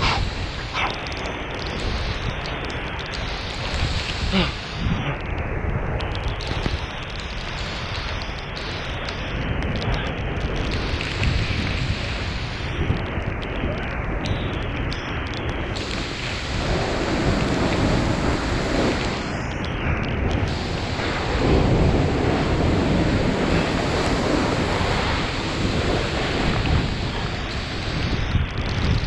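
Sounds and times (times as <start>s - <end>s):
waterfall roaring: 0.0s - 5.3s, 15.3s - 29.0s.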